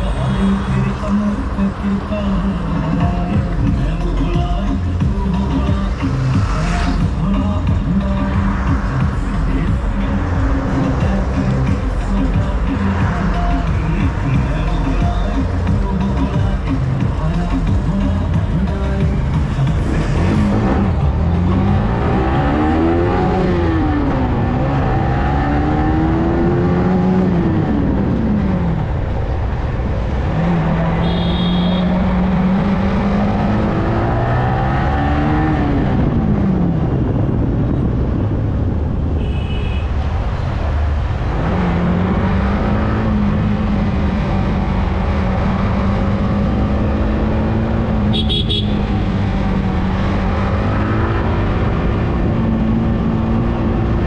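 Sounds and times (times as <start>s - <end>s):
motorcycle engine accelerating: 17.7s - 28.9s, 30.0s - 38.8s, 41.0s - 54.0s.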